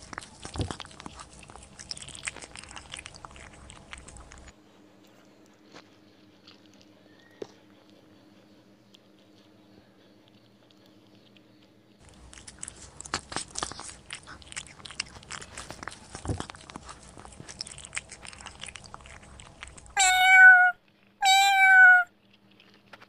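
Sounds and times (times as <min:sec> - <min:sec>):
cat crunching dry biscuits: 0:00.0 - 0:04.6, 0:12.0 - 0:23.0
cat meowing: 0:19.9 - 0:22.1.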